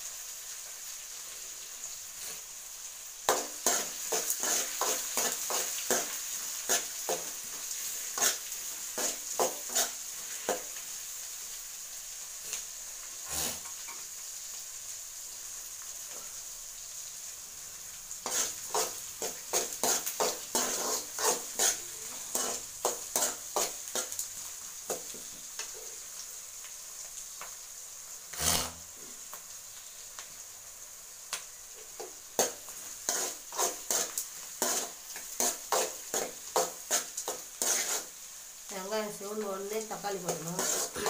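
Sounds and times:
onions sizzling in hot oil: 0.0s - 41.0s
ladle scraping pan: 18.3s - 24.1s, 28.3s - 28.9s, 33.1s - 38.1s, 40.6s - 41.0s.

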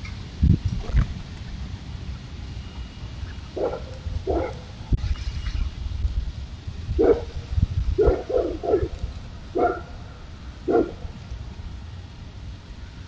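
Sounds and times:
animal barking: 3.5s - 4.8s, 7.0s - 7.4s, 8.0s - 11.2s.

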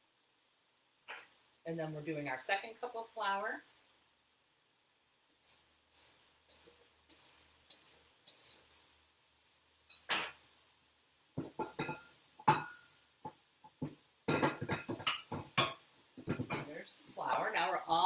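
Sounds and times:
knife scraping across cup: 5.4s - 8.6s.

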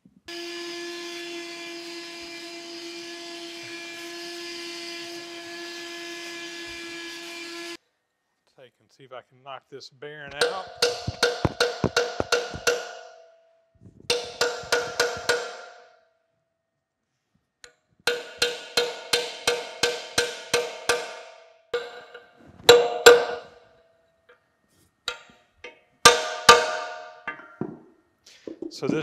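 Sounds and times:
hammer striking metal punch: 10.3s - 13.3s, 14.1s - 16.0s, 18.1s - 23.6s, 25.1s - 27.8s.

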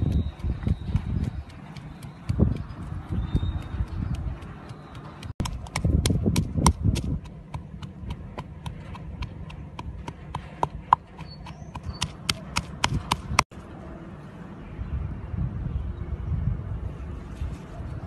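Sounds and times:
wooden pestle pounding in mortar: 0.0s - 13.5s.

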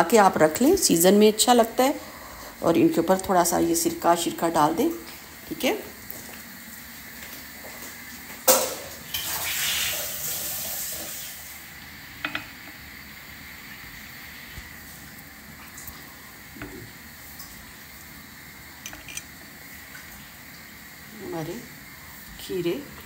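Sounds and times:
liquid pouring and splashing: 8.5s - 11.6s.

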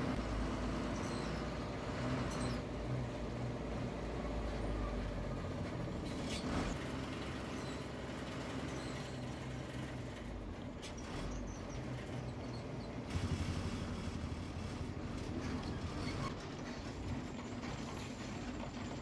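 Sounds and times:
bus diesel engine running: 0.0s - 19.0s
road noise: 0.0s - 19.0s.

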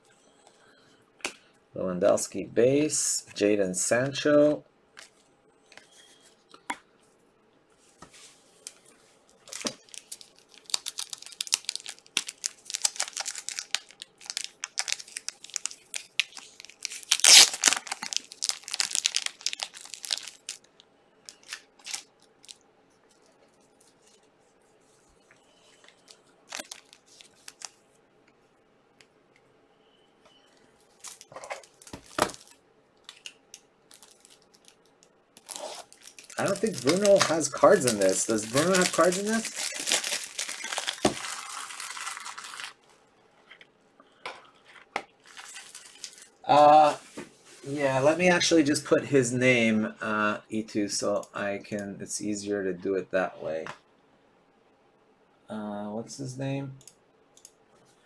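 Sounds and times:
wrappers tearing and crinkling: 9.4s - 22.6s, 26.0s - 27.8s, 30.9s - 42.9s, 44.6s - 46.4s.

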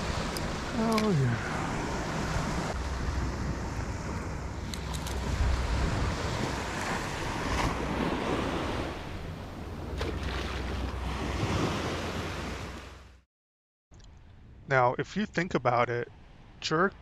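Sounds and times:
wind on microphone: 0.0s - 12.9s
ocean surf on beach: 0.0s - 13.2s.

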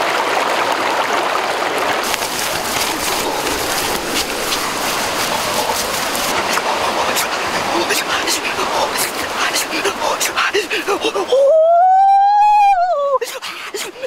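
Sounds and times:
fast-flowing stream water: 0.0s - 14.0s
sharp crackles: 2.0s - 6.4s.

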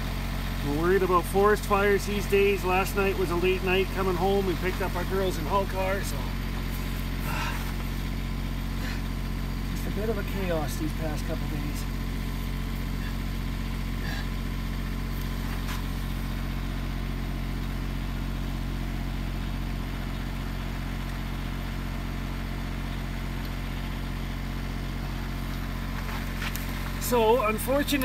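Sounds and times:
car engine idling: 0.0s - 28.0s.

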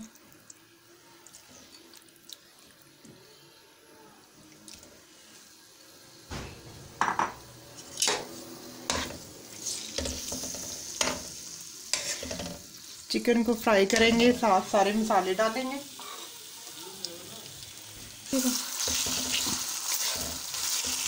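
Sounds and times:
oil sizzling: 4.3s - 21.0s.

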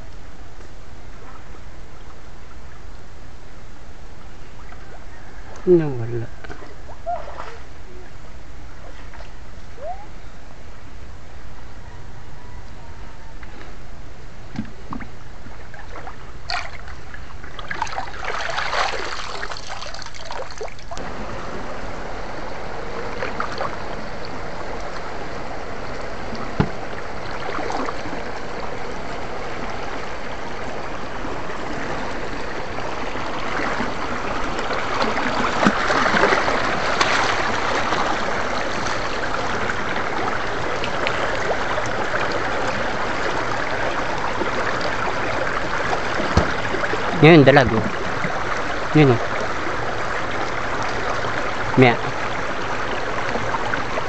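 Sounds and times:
stream trickling over rocks: 14.8s - 54.0s.

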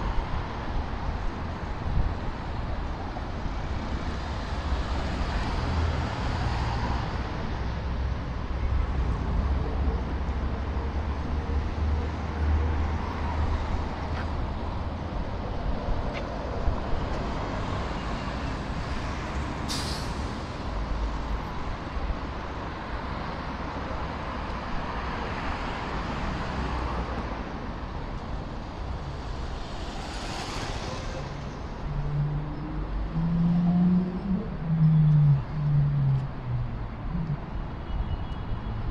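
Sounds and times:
traffic engines rumbling: 0.0s - 38.9s
air brake hiss: 19.7s - 20.5s.

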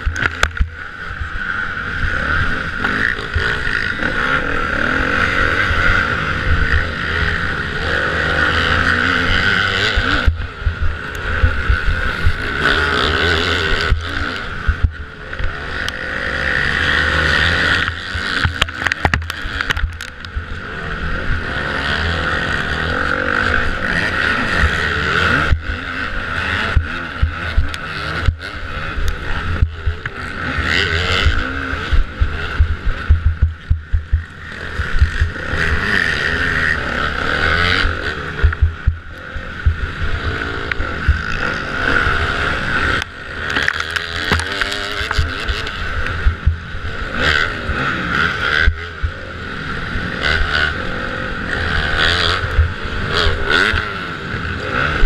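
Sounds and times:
motocross bike engine revving: 0.0s - 55.0s
wind on microphone: 9.6s - 12.6s, 31.0s - 35.8s, 37.5s - 41.4s, 44.3s - 46.9s.

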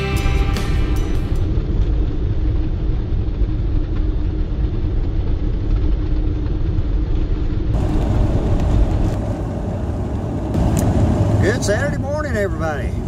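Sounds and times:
car cabin rumble: 7.2s - 13.0s.

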